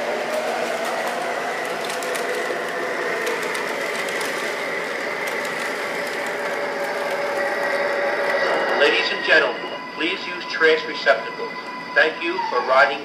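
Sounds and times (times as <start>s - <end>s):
model train motor whir: 0.0s - 8.5s
faint whine: 0.0s - 13.0s.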